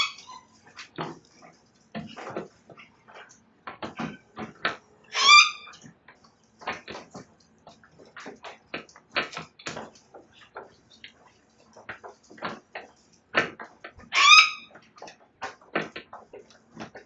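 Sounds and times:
birds gnawing wood: 0.0 - 17.0.

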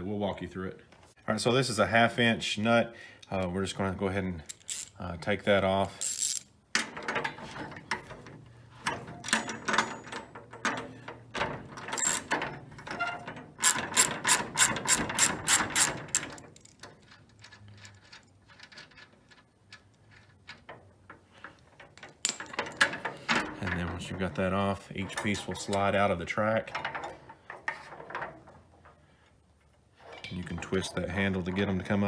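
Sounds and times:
metal parts handled: 4.4 - 5.0, 6.0 - 24.4.

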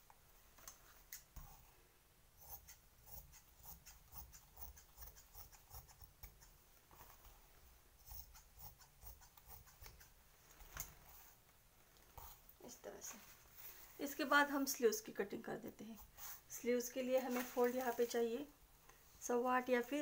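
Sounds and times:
scissors snipping cloth: 2.4 - 6.6, 8.0 - 10.2.

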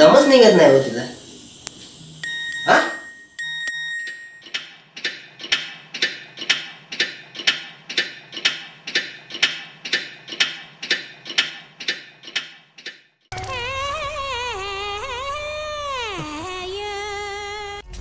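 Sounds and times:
ringing ticks: 2.2 - 13.0.

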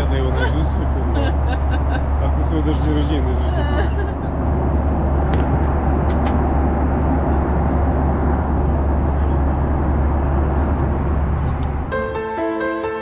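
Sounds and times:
airliner cabin engine rumble: 0.0 - 12.9
piano-like music: 11.6 - 13.0.

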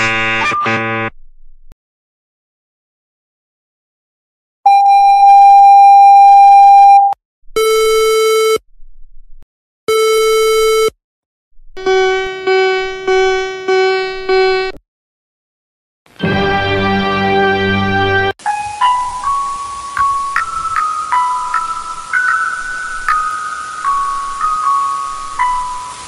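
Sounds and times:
low beeps: 4.7 - 7.2.

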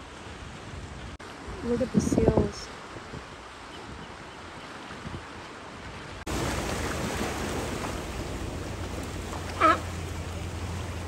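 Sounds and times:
ocean surf washing against rocks: 6.2 - 11.0
animal call: 9.5 - 10.0.

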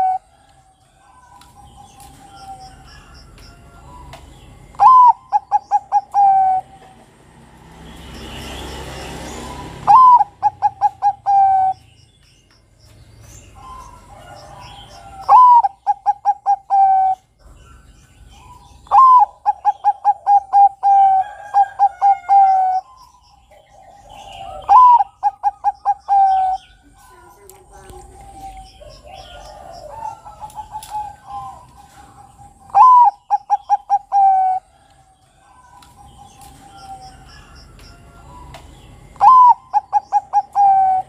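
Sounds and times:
dove cooing: 0.0 - 0.4, 3.8 - 7.1, 9.4 - 11.8, 13.5 - 17.2, 18.4 - 37.6, 38.2 - 41.0.

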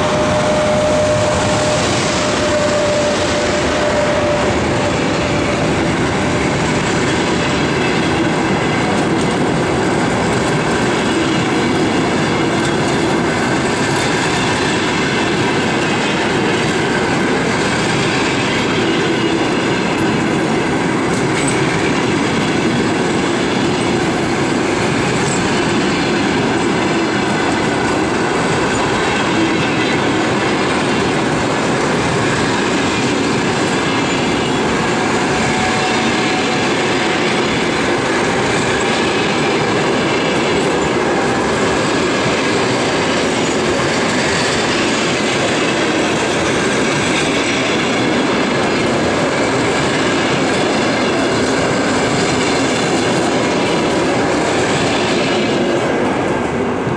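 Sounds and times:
train coaches rolling past: 0.0 - 56.9.

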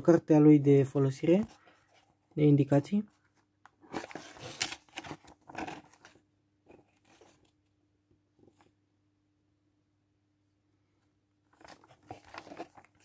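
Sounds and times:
paper rustling: 3.2 - 7.6, 11.5 - 13.0.

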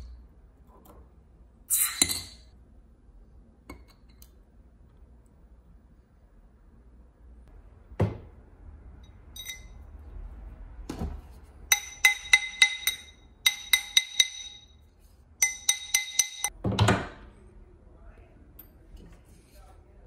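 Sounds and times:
hammer striking metal ring: 9.0 - 9.8, 11.7 - 14.8, 15.4 - 16.6.

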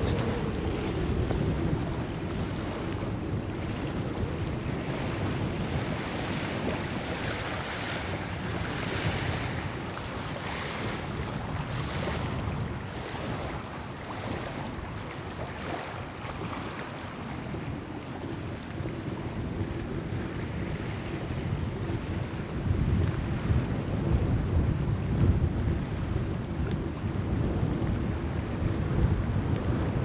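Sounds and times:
low rumble: 0.0 - 3.4
wind buffeting microphone: 0.0 - 30.0.

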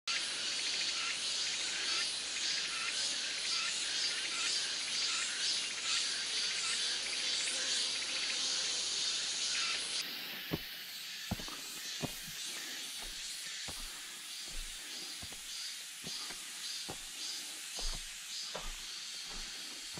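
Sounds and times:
insect chorus chirring: 0.1 - 19.9
outdoor hiss: 10.0 - 19.9.

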